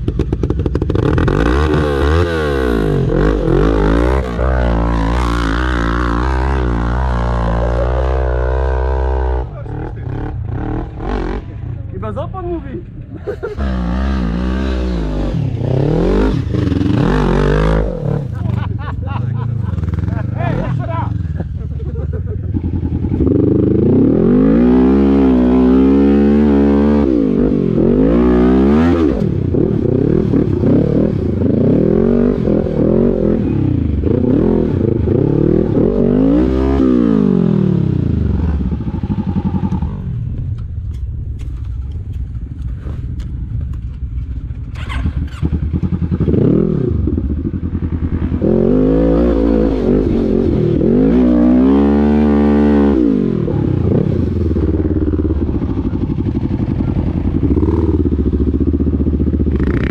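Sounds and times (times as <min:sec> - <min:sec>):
quad engine revving: 0:00.0 - 0:11.7, 0:13.3 - 0:40.6, 0:44.7 - 0:59.9.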